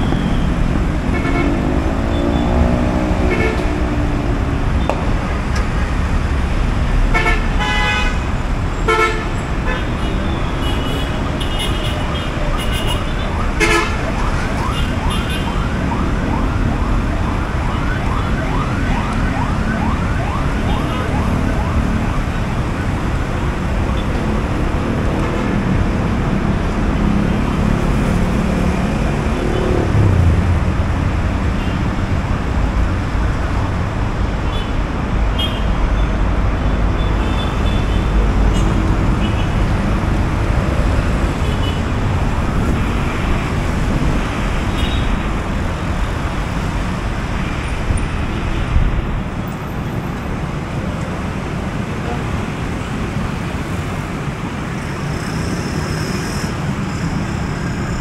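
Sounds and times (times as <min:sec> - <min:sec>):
traffic rumble: 0:00.0 - 0:58.0
warbling siren: 0:13.1 - 0:23.2.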